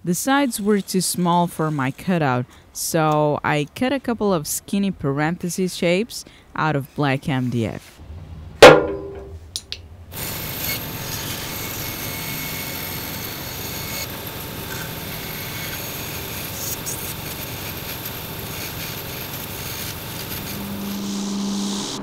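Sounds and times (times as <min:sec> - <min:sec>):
bandsaw cutting: 0:10.1 - 0:22.0.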